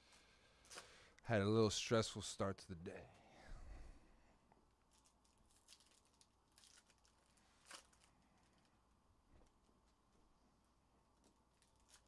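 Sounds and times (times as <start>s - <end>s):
light clicks of card packs: 0.0s - 1.2s, 4.8s - 8.8s
foil packs crinkling: 4.8s - 8.8s, 11.2s - 12.0s.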